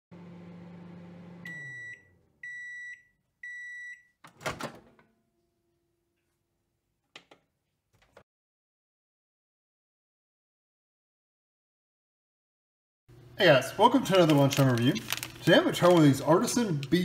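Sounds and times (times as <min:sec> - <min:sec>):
microwave oven humming: 0:00.1 - 0:06.0, 0:13.1 - 0:17.0.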